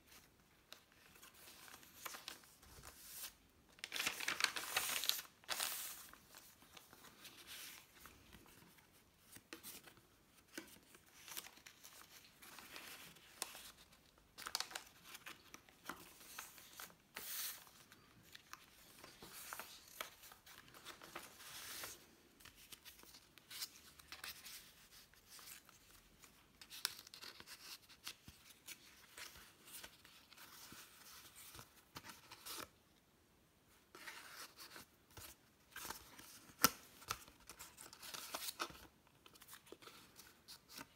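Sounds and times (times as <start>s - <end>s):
paper rustling and crinkling: 0.0s - 32.8s.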